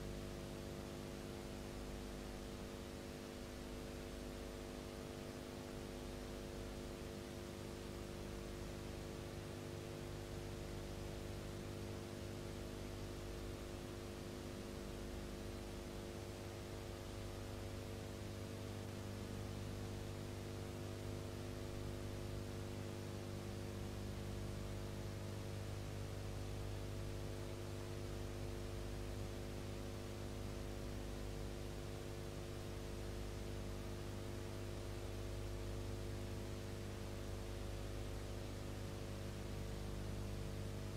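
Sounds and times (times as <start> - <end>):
electrical hum: 0.0 - 32.4
constant hiss: 0.0 - 40.9.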